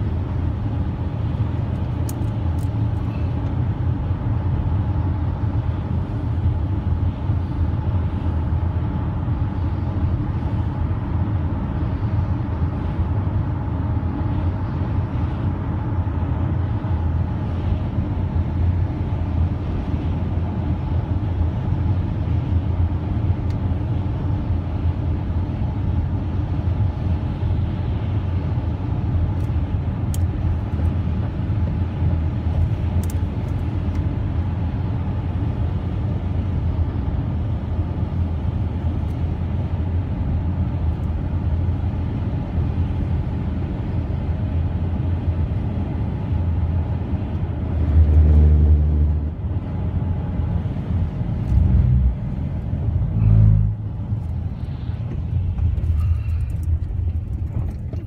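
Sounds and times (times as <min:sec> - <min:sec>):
car road noise rumble: 0:00.0 - 0:58.0.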